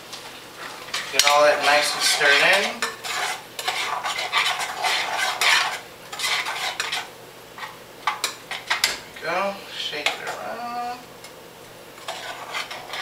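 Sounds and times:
spoon stirring sauce in saucepan: 0.6s - 9.0s, 12.0s - 13.0s.

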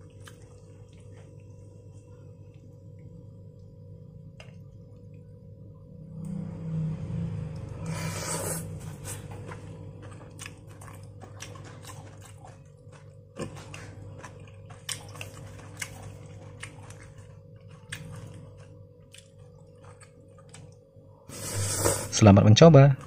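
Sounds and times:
chewing and mouth smacks: 0.0s - 1.5s, 9.1s - 20.9s
faint steady hum: 0.0s - 23.0s.

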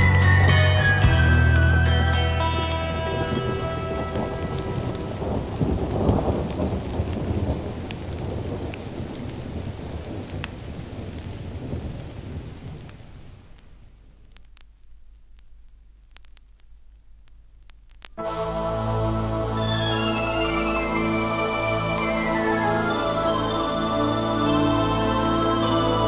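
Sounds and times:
music from vinyl record: 0.0s - 5.6s, 18.0s - 26.0s
recorded rain and thunder: 0.0s - 16.3s, 17.9s - 26.0s
record surface clicks: 13.6s - 18.2s.

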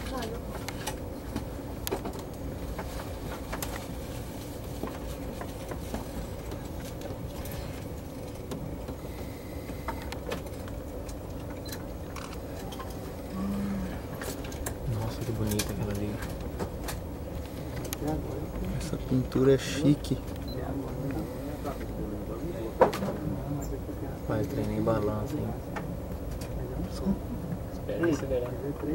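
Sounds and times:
train rumbling: 0.0s - 28.9s
small clicks and rattles: 14.2s - 18.8s.

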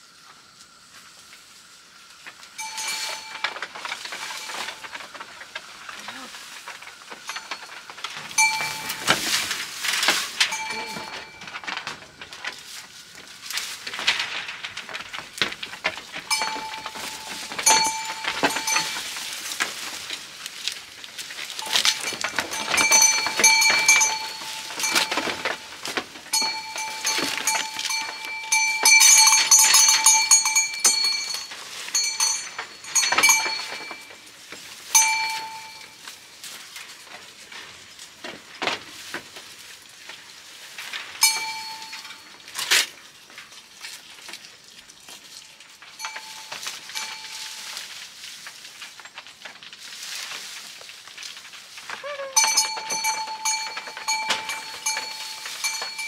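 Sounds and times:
goats chewing leaves: 0.0s - 56.0s.

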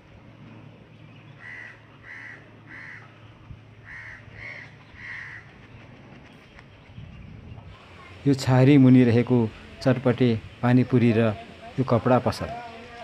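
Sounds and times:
crow cawing: 1.4s - 3.2s, 3.8s - 5.6s.

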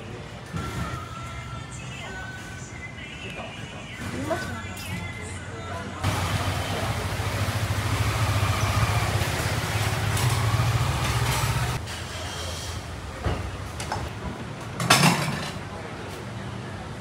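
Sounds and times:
vehicle engine running: 6.0s - 11.8s.

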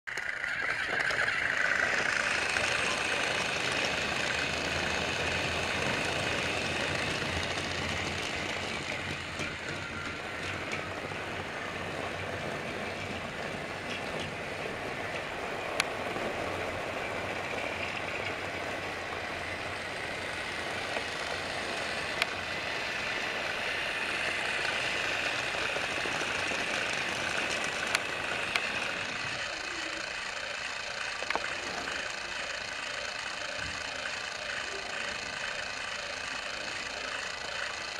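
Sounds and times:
toy train motor whirring: 0.1s - 37.9s.

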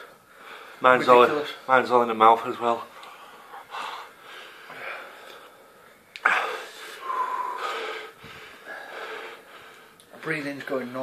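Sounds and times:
men panting wheezily: 3.1s - 10.0s.

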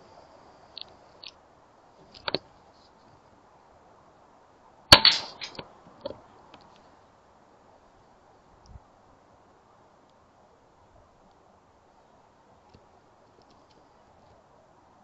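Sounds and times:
faint clicks: 0.7s - 1.4s, 12.6s - 14.4s
air rifle shot: 4.9s - 5.6s.

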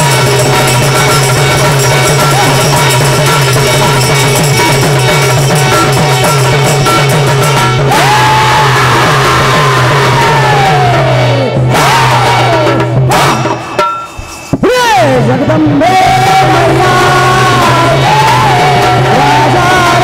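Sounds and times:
hand cymbals: 0.0s - 9.2s, 11.8s - 14.6s
drum: 0.0s - 20.0s.

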